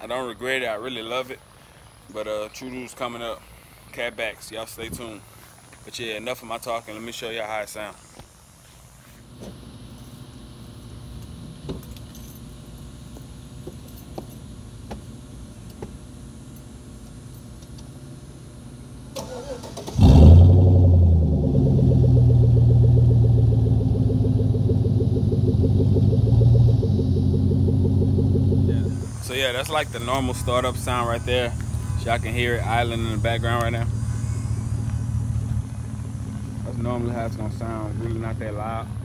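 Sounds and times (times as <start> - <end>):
engine cranking and starting: 19.2 - 20.6
deep engine idle: 20.0 - 39.0.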